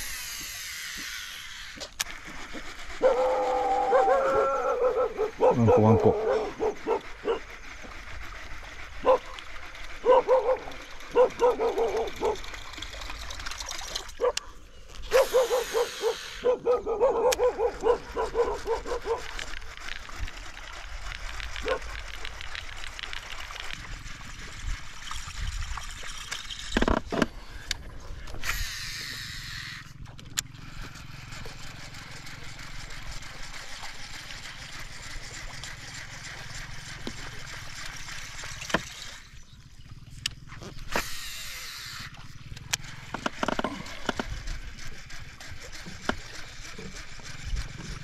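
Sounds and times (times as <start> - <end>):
dog yipping: 3.0 - 7.4, 9.0 - 9.4, 10.0 - 12.4, 15.1 - 19.3, 21.6 - 21.9.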